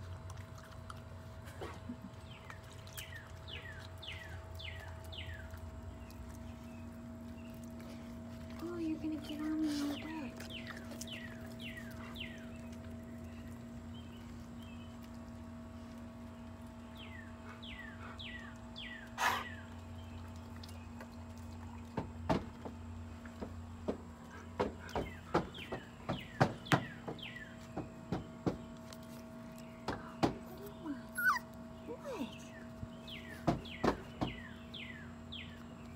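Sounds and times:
sharp knocks and clicks: 0:33.4 - 0:34.4.

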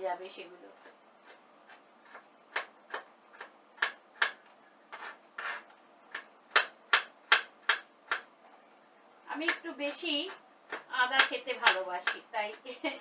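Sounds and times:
knife chopping on cutting board: 0:00.8 - 0:04.4.

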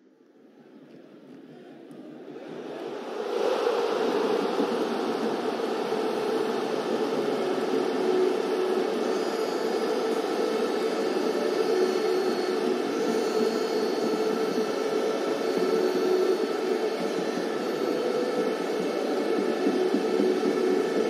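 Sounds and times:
faint hum: 0:00.0 - 0:21.0
static hiss: 0:02.7 - 0:21.0.

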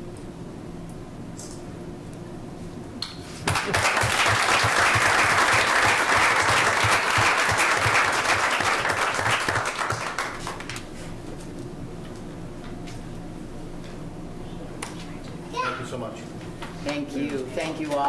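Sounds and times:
audience applause: 0:03.4 - 0:10.7.

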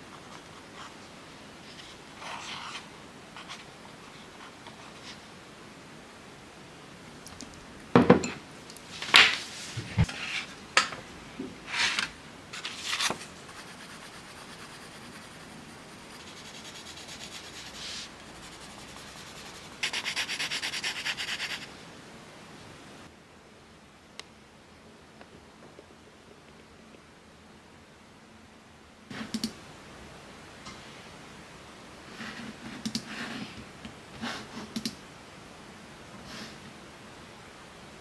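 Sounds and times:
paper rustling: 0:11.7 - 0:13.4
rapid pencil shading strokes: 0:13.4 - 0:21.7
colored pencil scratching on paper: 0:13.5 - 0:21.7.

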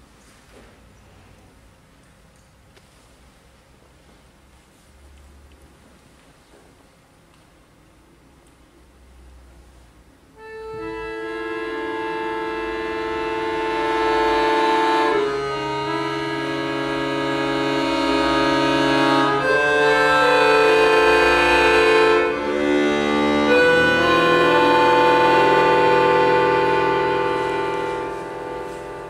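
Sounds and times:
accordion playing held chords: 0:10.3 - 0:29.0.

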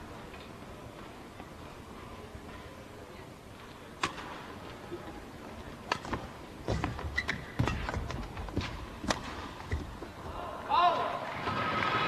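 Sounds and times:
shoes squeaking on court: 0:06.0 - 0:10.2.

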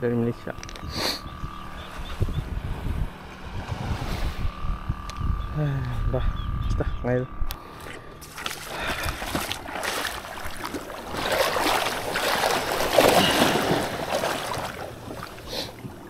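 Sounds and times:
water splashing around kayak: 0:07.7 - 0:16.0.

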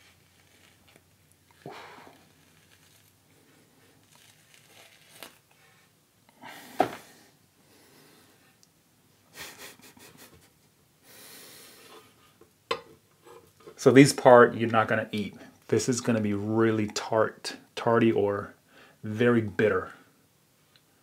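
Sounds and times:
knife peeling leaf skin: 0:00.0 - 0:03.2, 0:04.0 - 0:05.6.

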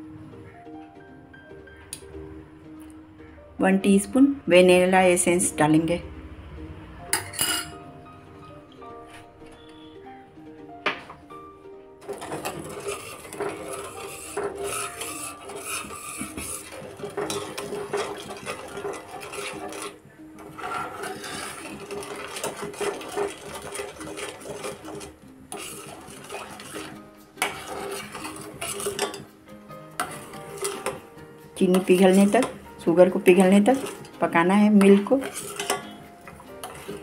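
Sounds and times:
spoon scraping steel saucepan: 0:07.2 - 0:07.8, 0:12.0 - 0:37.0.

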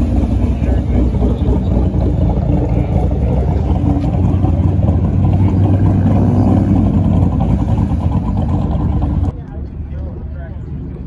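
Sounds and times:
car engine and exhaust rumbling: 0:00.0 - 0:11.0.

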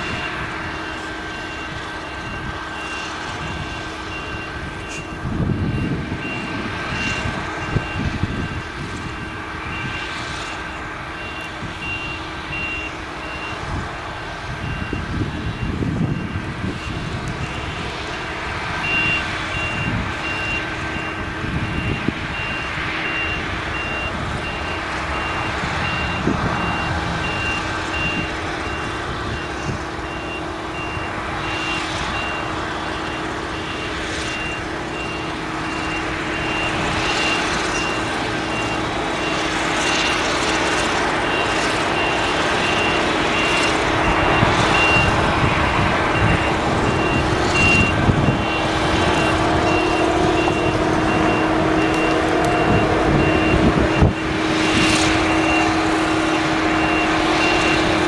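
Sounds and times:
harvester engine droning: 0:00.0 - 0:58.0
high electronic beeps: 0:46.2 - 0:54.2.

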